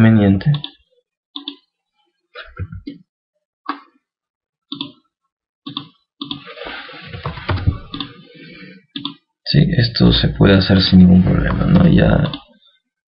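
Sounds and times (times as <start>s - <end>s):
computer mouse clicking: 4.7s - 5.0s, 5.7s - 6.4s, 7.9s - 8.2s.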